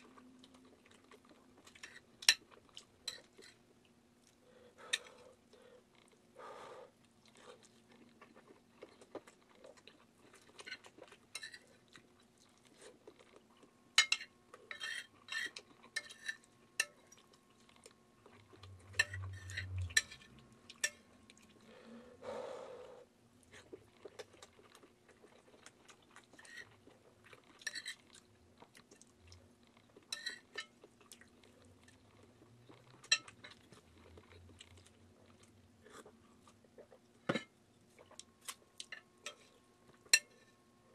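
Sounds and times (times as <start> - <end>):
quiet chewing: 0.0 - 6.3, 7.0 - 21.9, 22.8 - 40.6
metal spoon scraping a plate: 14.0 - 16.9.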